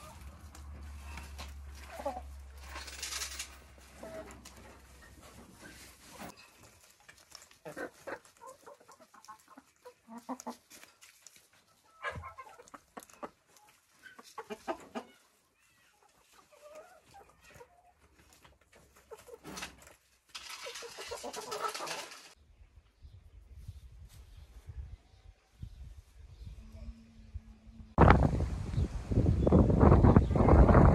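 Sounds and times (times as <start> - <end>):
chickens clucking: 0.0 - 2.5, 3.8 - 22.4.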